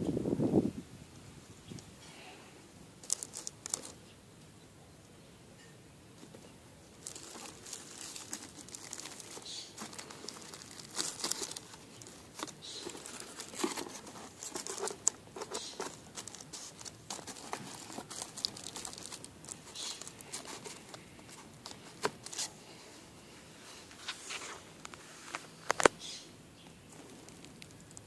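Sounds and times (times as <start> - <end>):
plastic sheet crinkling: 3.0 - 4.0, 7.0 - 22.5.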